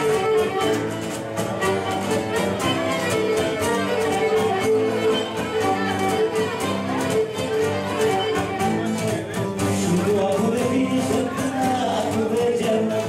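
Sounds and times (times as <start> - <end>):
bowed lyra melody: 0.0 - 9.3
lute strumming: 0.0 - 13.0.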